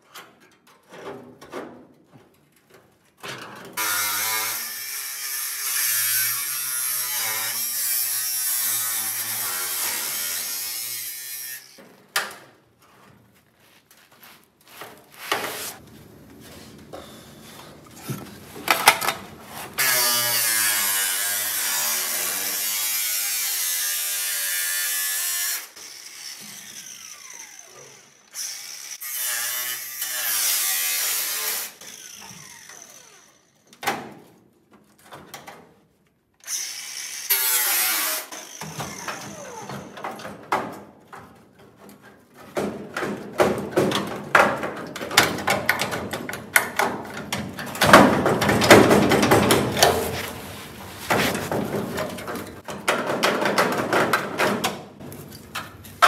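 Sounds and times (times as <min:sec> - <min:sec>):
angle grinder cutting sheet steel: 0:03.8 - 0:11.8, 0:19.6 - 0:33.4, 0:36.5 - 0:40.0.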